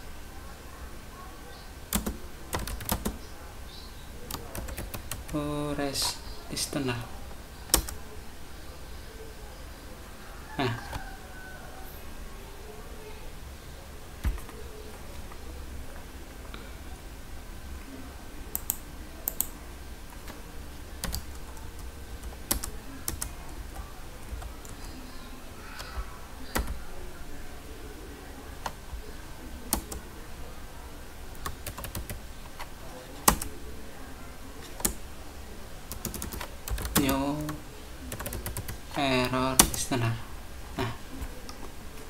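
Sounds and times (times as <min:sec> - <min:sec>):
computer keyboard typing: 0:01.9 - 0:03.2, 0:04.2 - 0:05.4, 0:07.7 - 0:08.0, 0:14.2 - 0:15.4, 0:18.5 - 0:20.4, 0:21.0 - 0:25.0, 0:25.8 - 0:26.8, 0:29.7 - 0:30.0, 0:31.4 - 0:33.5, 0:34.6 - 0:35.0, 0:35.9 - 0:39.9.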